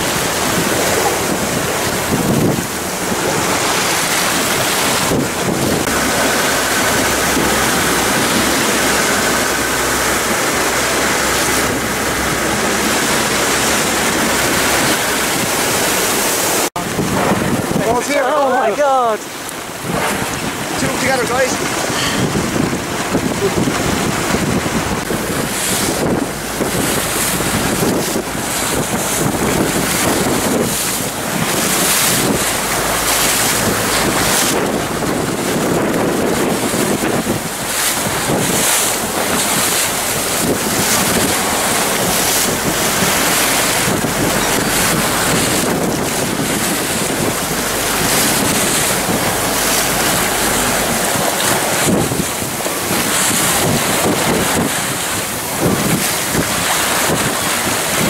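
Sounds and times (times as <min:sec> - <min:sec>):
low rumble: 0:00.0 - 0:18.1, 0:19.2 - 0:57.2
waves and spray: 0:00.0 - 0:58.0
wind buffeting microphone: 0:00.0 - 0:58.0.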